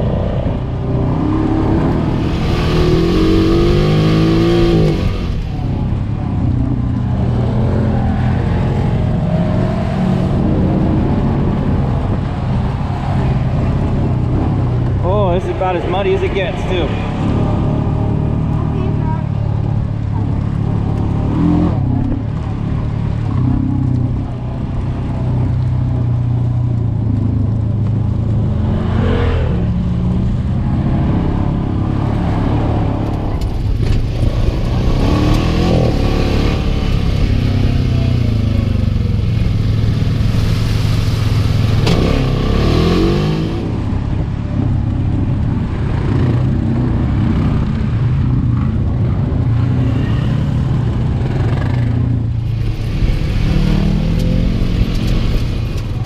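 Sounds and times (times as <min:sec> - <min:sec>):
utility vehicle engine revving: 0:00.0 - 0:56.0.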